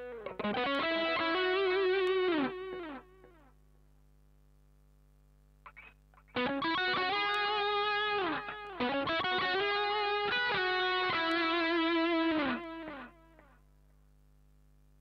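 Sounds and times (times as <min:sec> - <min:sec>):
distorted electric guitar: 0:00.0 - 0:03.5, 0:05.6 - 0:13.6
faint steady hum: 0:00.0 - 0:15.0.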